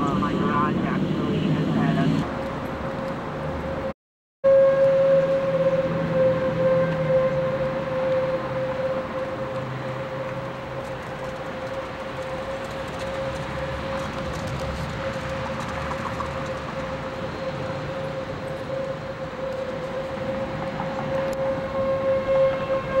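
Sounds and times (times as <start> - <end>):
low rumbling noise: 0.0 - 3.9
warning siren steady tone: 3.0 - 23.0.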